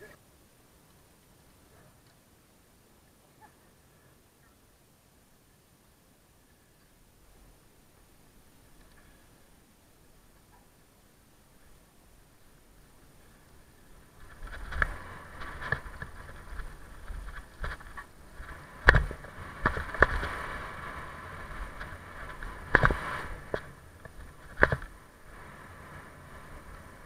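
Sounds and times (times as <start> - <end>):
tyres rolling over dirt: 13.0 - 27.0
bike knocking and rattling: 13.2 - 27.0.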